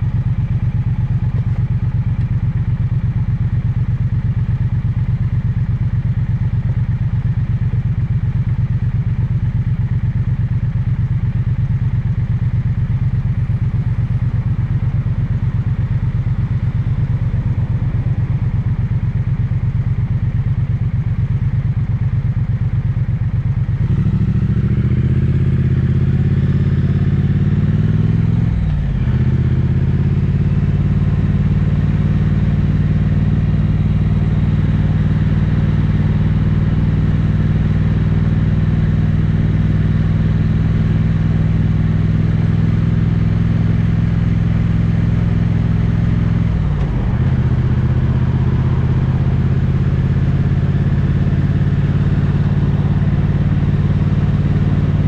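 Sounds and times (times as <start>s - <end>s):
motorcycle engine and exhaust: 0.0s - 55.0s.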